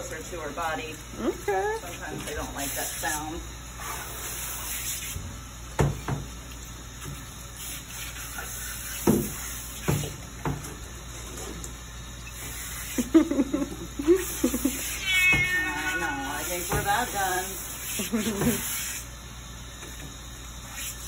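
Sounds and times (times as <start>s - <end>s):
shower sprayer running water: 0.0s - 21.0s
cat yowling: 14.7s - 16.6s.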